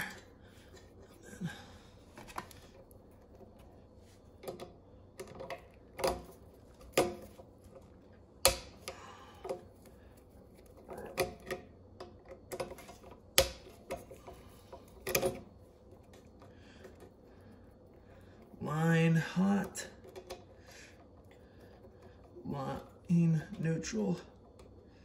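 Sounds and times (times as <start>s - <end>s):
screwdriver clicks and taps: 8.4s - 9.6s, 10.6s - 14.1s.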